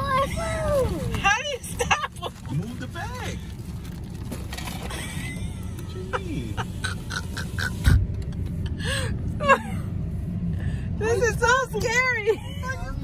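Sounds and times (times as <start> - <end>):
idling car rumble: 0.0 - 13.0.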